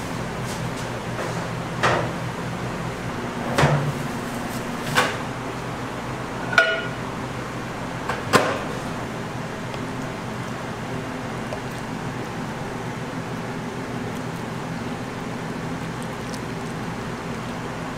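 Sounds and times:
steady low hum: 0.0 - 17.9
glass bowls knocking: 6.5 - 7.0.

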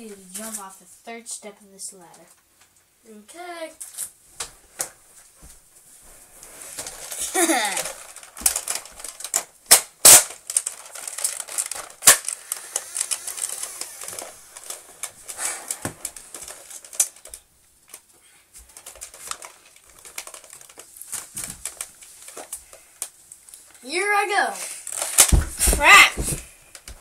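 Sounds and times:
child moving about a room: 0.0 - 27.0.

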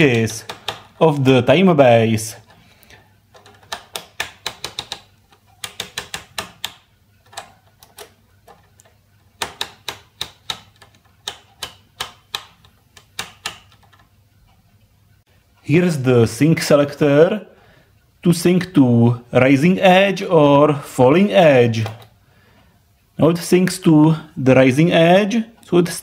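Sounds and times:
rotary switch clicking: 0.0 - 1.0, 3.4 - 14.1.

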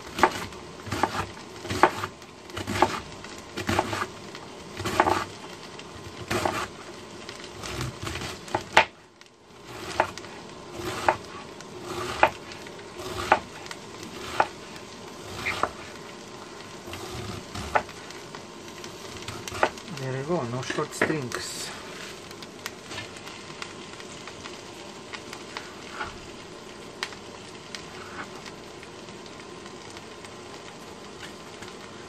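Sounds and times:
pot frying sizzle: 0.0 - 32.0
knife chopping cabbage on board: 0.1 - 3.0, 3.6 - 4.1, 4.8 - 5.3, 6.2 - 6.7, 9.7 - 10.2, 10.8 - 11.3, 12.0 - 12.4, 13.0 - 13.5, 14.2 - 14.6, 15.3 - 15.8.

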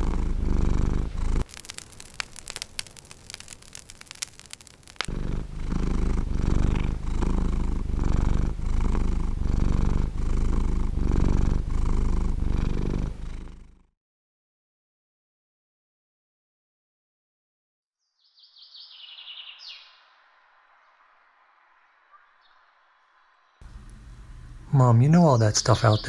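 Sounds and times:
wood fire crackling: 0.0 - 9.3, 23.6 - 24.9
cat purring loudly: 0.0 - 13.9.

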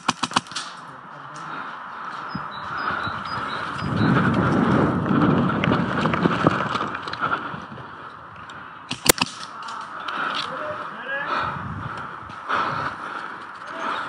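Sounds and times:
sharp crack: 0.0 - 0.9, 8.9 - 9.9
camera movement and wind noise: 1.8 - 14.0.

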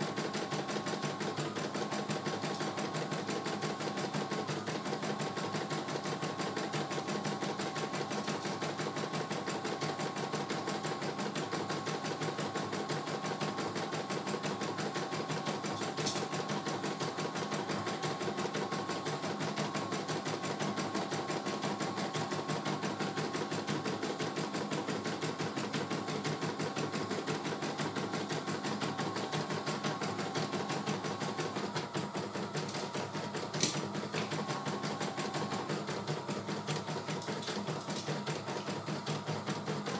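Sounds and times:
steady motor hum: 15.0 - 39.9.

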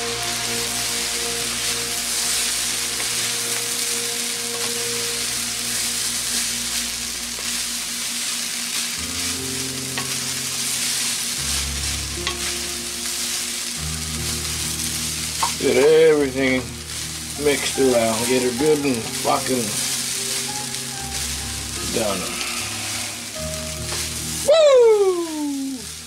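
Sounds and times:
rice sizzling in a wok: 0.0 - 26.0.

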